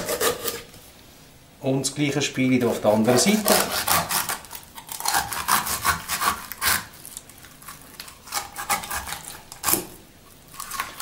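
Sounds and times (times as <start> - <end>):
knife sawing through chicken bones: 0.0 - 0.7, 2.6 - 9.9.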